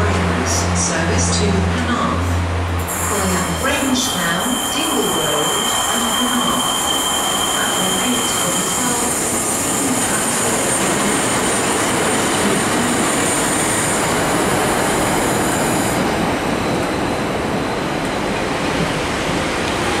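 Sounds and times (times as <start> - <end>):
diesel train passing: 0.0 - 20.0
high-pitched squeal: 2.8 - 9.7.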